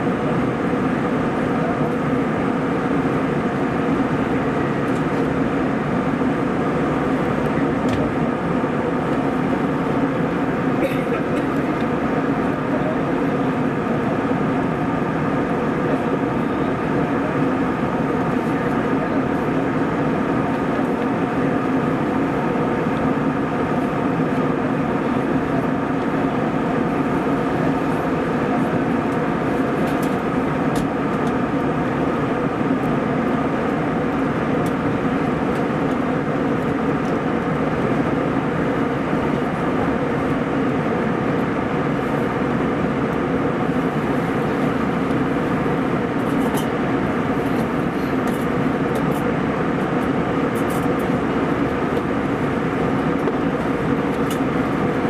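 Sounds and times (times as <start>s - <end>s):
airliner engine drone: 0.0s - 55.0s.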